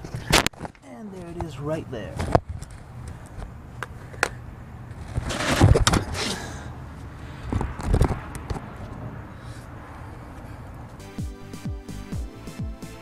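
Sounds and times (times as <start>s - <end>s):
scraping rustles: 4.9s - 6.3s.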